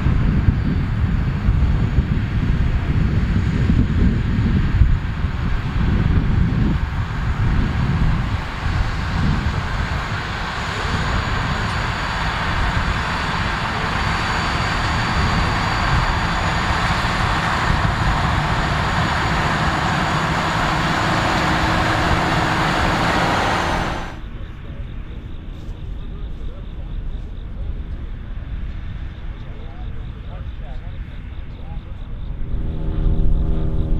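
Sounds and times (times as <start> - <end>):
tractor diesel engine under load: 5.2 - 24.3.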